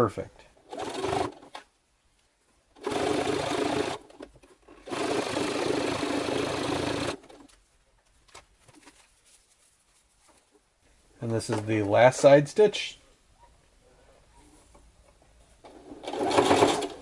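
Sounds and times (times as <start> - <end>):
sewing machine stitching leather: 0.6 - 1.6, 2.8 - 7.5, 15.6 - 17.0.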